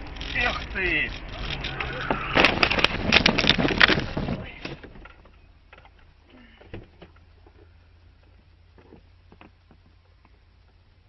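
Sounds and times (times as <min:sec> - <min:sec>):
car crash: 0:00.3 - 0:05.4.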